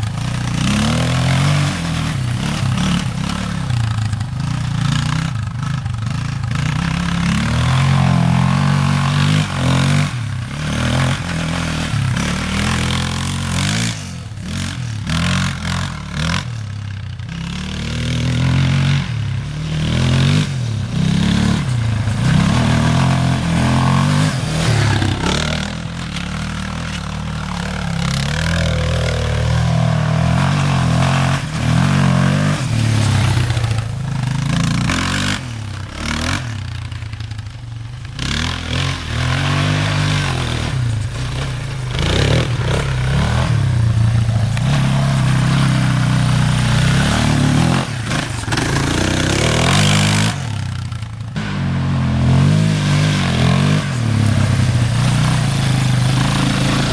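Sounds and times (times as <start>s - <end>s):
atv engine revving: 0.0s - 56.9s.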